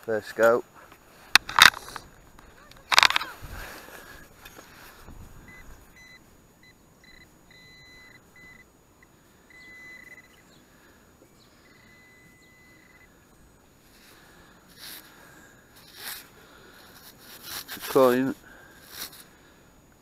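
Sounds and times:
metal detector pinpointer beeping: 5.5 - 10.5, 11.5 - 13.2.

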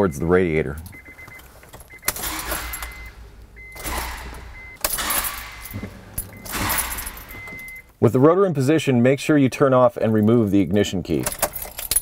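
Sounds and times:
starter motor cranking: 2.0 - 7.8.

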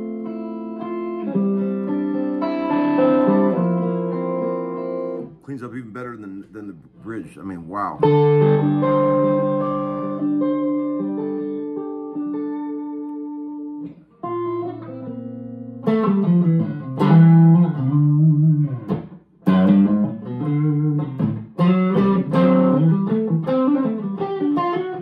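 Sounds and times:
clean electric guitar: 0.0 - 25.0.

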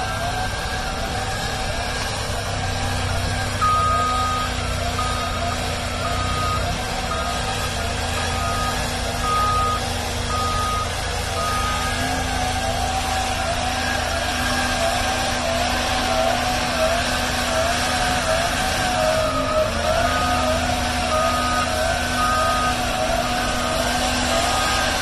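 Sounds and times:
diesel engine running: 0.0 - 25.0
backup alarm beeping: 3.6 - 7.5, 8.3 - 12.5.

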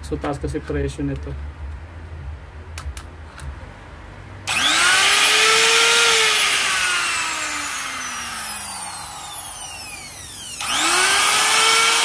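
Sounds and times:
router motor whine: 4.5 - 12.0.

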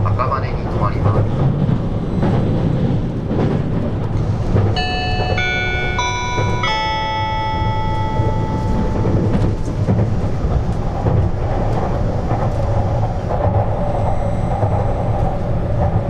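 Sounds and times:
train wheels rumbling: 0.0 - 16.0
announcement chime: 4.8 - 10.0.

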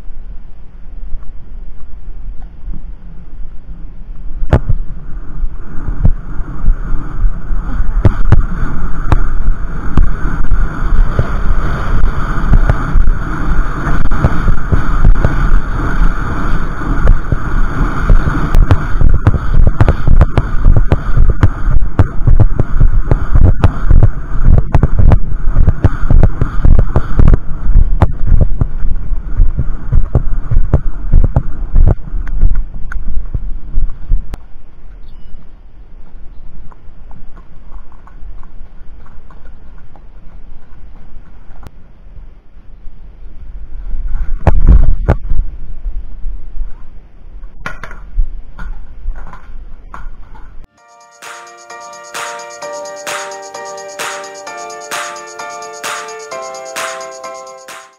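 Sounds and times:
wind buffeting microphone: 4.3 - 34.4.

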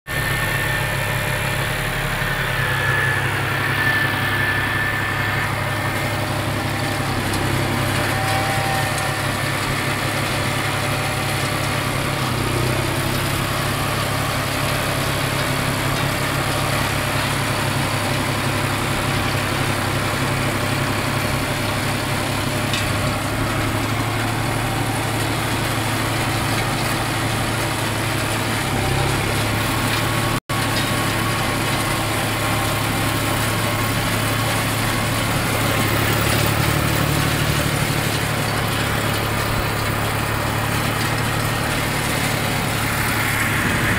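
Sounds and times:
tractor engine droning: 0.1 - 43.9.

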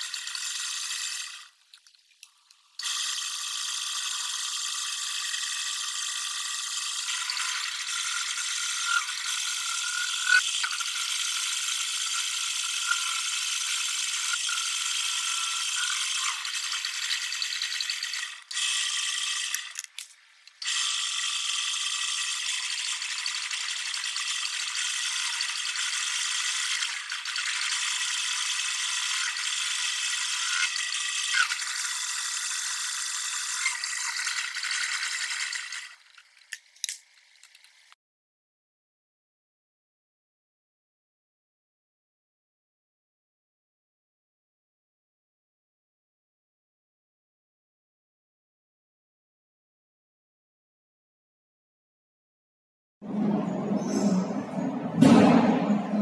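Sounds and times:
metal lathe running: 2.8 - 19.8, 20.6 - 36.0.

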